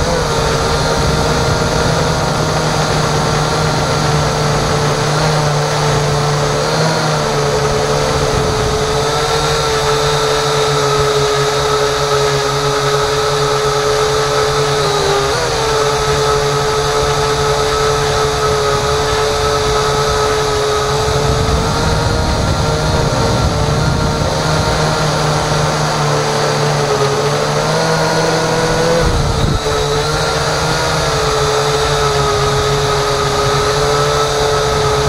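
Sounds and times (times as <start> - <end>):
model aircraft motor droning: 0.0 - 35.0
air rushing over microphone: 28.7 - 30.2.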